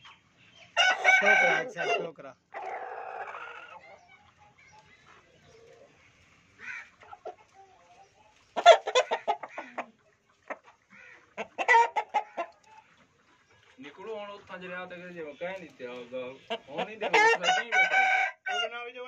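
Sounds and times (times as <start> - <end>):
rooster clucking: 0.8 - 4.5, 5.1 - 13.2, 16.4 - 18.7.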